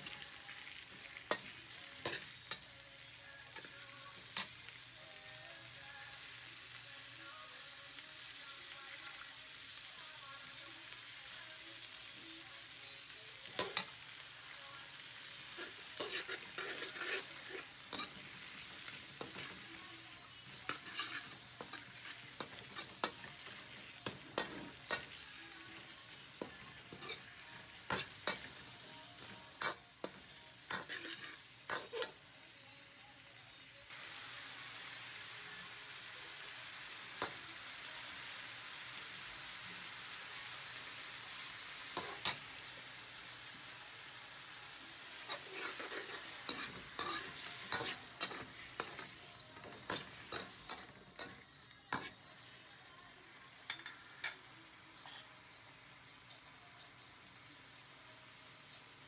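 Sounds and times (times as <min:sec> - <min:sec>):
shrimp sizzling in hot oil: 0:00.0 - 0:59.0
metal ladle scraping a wok: 0:15.6 - 0:18.3, 0:20.7 - 0:25.1, 0:30.7 - 0:32.2, 0:45.3 - 0:52.2.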